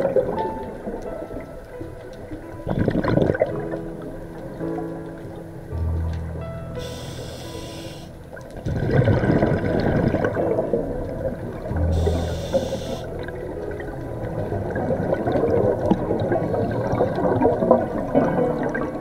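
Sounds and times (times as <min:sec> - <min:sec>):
underwater bubbles gurgling: 0:00.0 - 0:19.0
regulator hiss: 0:06.8 - 0:08.2, 0:11.9 - 0:13.2
low hum: 0:10.8 - 0:16.6.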